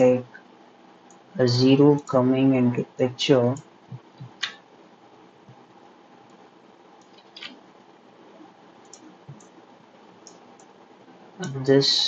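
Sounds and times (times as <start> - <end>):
soft clicks: 8.8 - 9.6, 10.2 - 10.8.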